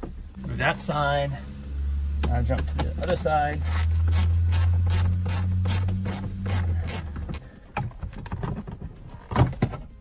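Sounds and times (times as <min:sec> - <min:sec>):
hand ratchet clicking: 0:03.0 - 0:07.4.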